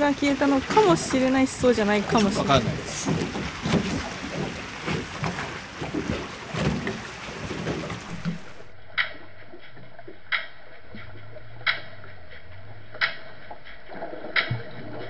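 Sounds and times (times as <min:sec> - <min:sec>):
small boat motor on water: 0:00.0 - 0:08.8
underwater pile-driving hammer strikes: 0:00.3 - 0:09.2.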